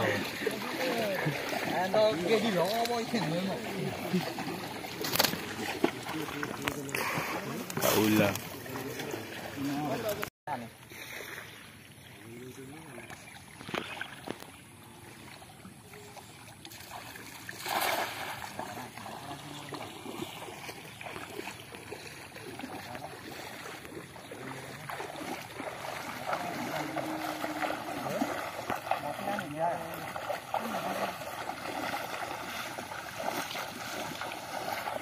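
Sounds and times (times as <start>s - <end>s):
water sloshing around wading legs: 0.0s - 35.0s.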